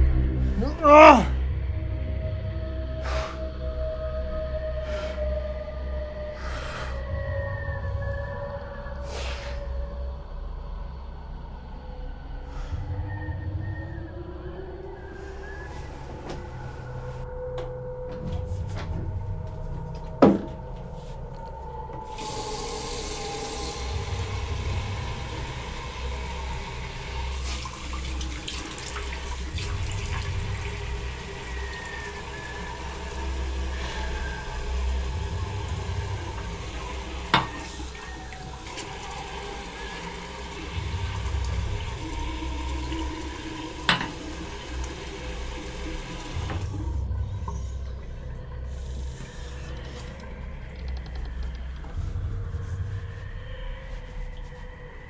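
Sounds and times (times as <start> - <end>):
tap water running into sink: 22.1 - 46.7
low rumble: 46.6 - 55.0.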